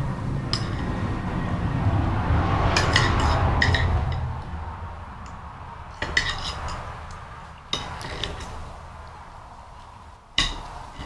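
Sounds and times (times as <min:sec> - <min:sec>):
dishes and cutlery clinking: 0:02.8 - 0:04.3, 0:05.9 - 0:06.9, 0:07.7 - 0:08.7.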